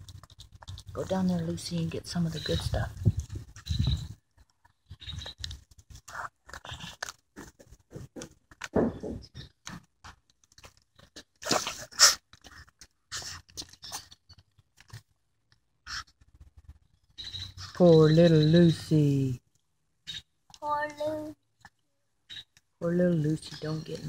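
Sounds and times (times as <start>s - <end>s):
dog gnawing a bone: 0.0s - 1.3s, 4.3s - 8.8s, 9.4s - 16.3s.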